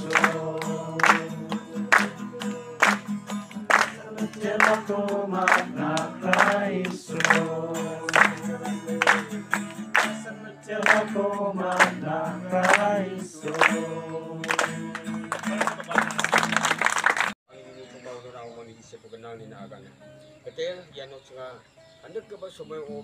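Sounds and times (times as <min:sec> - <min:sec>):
congregation singing: 0:00.0 - 0:15.5
strummed acoustic guitar: 0:00.0 - 0:17.2
hands clapping: 0:00.0 - 0:17.4.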